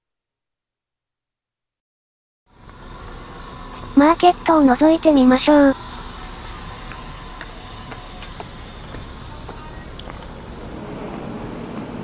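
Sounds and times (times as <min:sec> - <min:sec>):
traffic rumble: 0:02.5 - 0:12.0
faint footsteps: 0:06.8 - 0:10.4.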